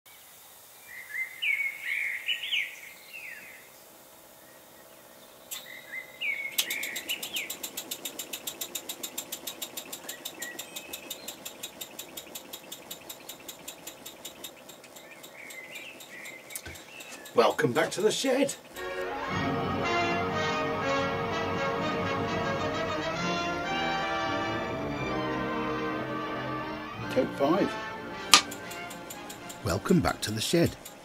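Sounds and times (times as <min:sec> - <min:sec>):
birds chirping: 0:00.1 - 0:19.0
model engine puffing: 0:05.5 - 0:20.0, 0:27.6 - 0:31.0.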